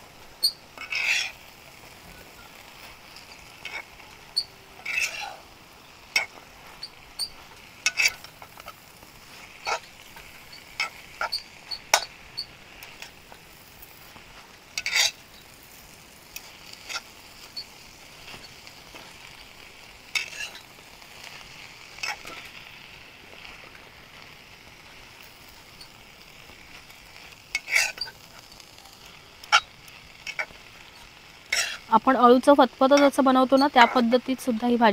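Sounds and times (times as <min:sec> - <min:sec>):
greens sizzling in a frying pan: 0:00.0 - 0:34.9
utensil scraping and knocking pan: 0:00.4 - 0:01.4, 0:04.8 - 0:05.4, 0:06.1 - 0:13.2, 0:14.8 - 0:15.2, 0:20.1 - 0:20.7, 0:27.5 - 0:28.2, 0:31.5 - 0:31.9.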